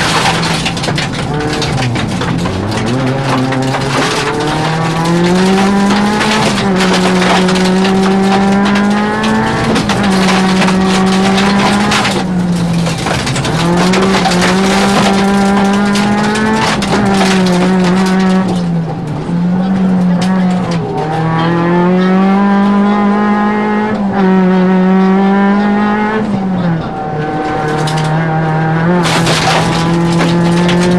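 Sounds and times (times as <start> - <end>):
stones clattering against car: 0.0 - 21.1, 27.3 - 30.9
rally car engine revving: 0.0 - 30.9.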